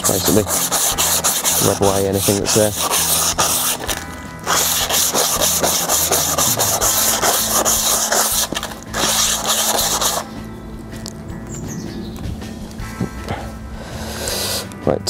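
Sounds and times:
emery cloth rasping on brake drum: 0:00.0 - 0:10.4.

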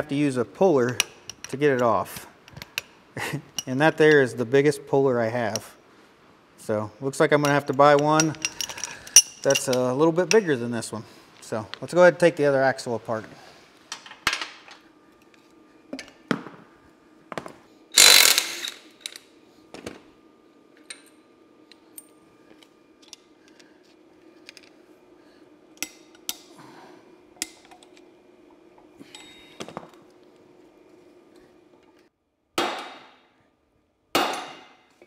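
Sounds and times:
hand tools clicking and scraping metal: 0:07.4 - 0:10.5, 0:18.0 - 0:19.2.

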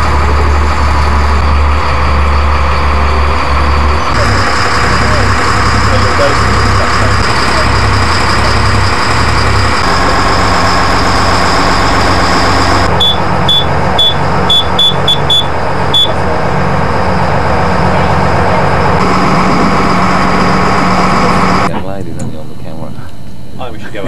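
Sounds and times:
boat engine droning: 0:00.0 - 0:24.0
short high electronic beeps: 0:12.9 - 0:16.2.

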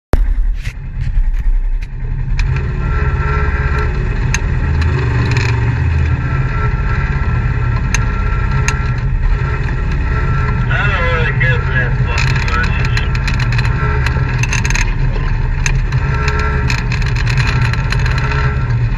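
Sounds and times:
off-road vehicle engine rumbling: 0:00.1 - 0:18.9
sharp clicks and knocks: 0:07.7 - 0:10.7, 0:11.9 - 0:18.9.

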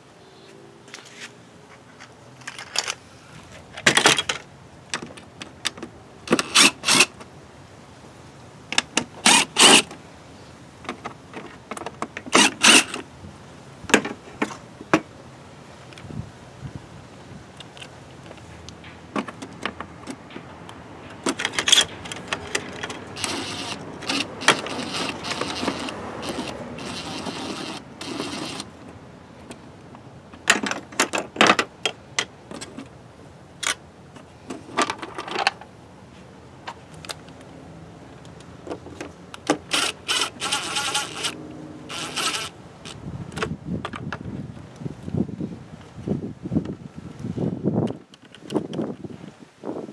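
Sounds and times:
cordless drill whirring: 0:23.2 - 0:28.7, 0:39.7 - 0:42.6.

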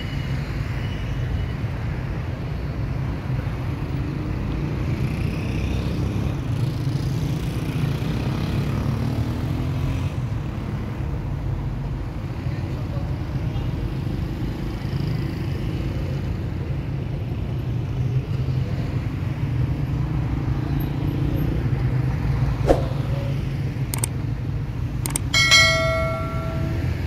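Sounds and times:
street traffic rumble: 0:00.0 - 0:27.0
sharp clicks: 0:24.0 - 0:24.2, 0:25.0 - 0:25.6
short bell chime: 0:25.4 - 0:27.0.

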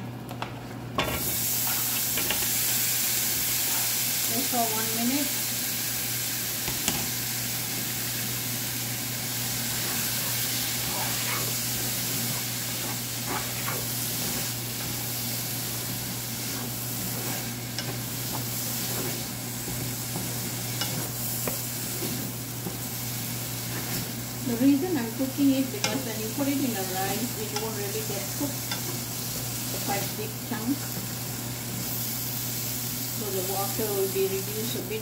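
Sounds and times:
steady low hum: 0:00.0 - 0:35.0
fruit sizzling in a frying pan: 0:00.9 - 0:35.0
wooden spatula scraping a pan: 0:09.7 - 0:23.0, 0:23.6 - 0:29.0.

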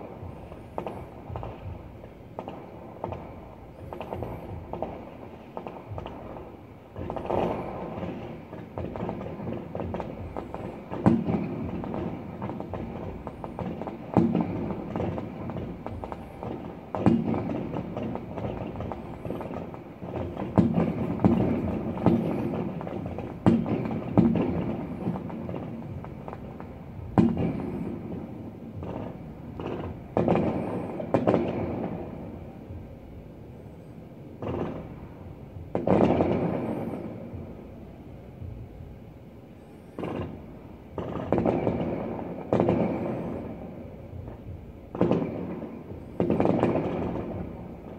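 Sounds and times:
fireworks booming with echo: 0:00.0 - 0:47.9.

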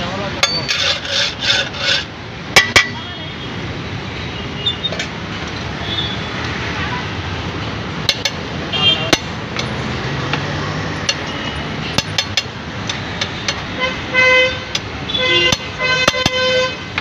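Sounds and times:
street traffic noise: 0:00.0 - 0:17.0
metal spatula scraping griddle: 0:00.4 - 0:02.1
vehicle horn: 0:08.7 - 0:09.1, 0:13.8 - 0:17.0.

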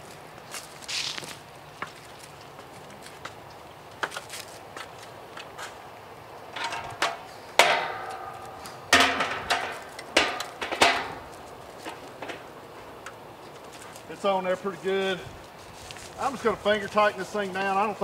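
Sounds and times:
metal lid clanging on metal drum: 0:06.5 - 0:11.3.

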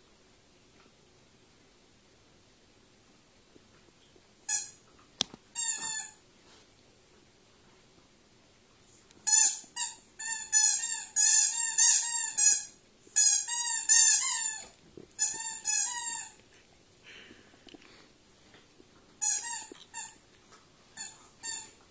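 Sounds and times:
squeaky dog toy squeaking: 0:04.5 - 0:04.8, 0:05.6 - 0:06.2, 0:09.2 - 0:16.4, 0:19.2 - 0:20.2, 0:21.0 - 0:21.8.

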